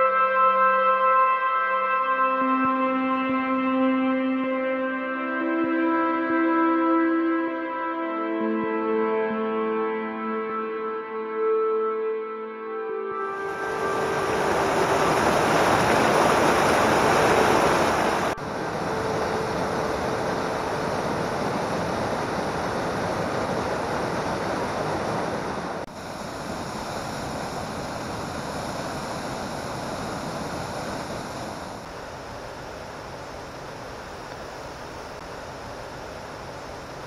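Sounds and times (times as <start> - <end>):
water rushing over rocks: 13.3 - 37.0.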